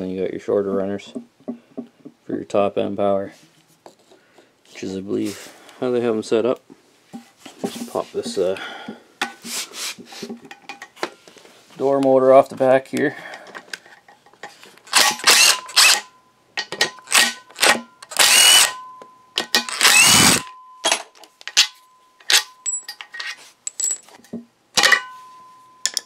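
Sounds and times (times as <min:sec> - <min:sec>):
impact driver running: 0:15.0 - 0:16.0, 0:17.1 - 0:18.8, 0:19.7 - 0:20.5.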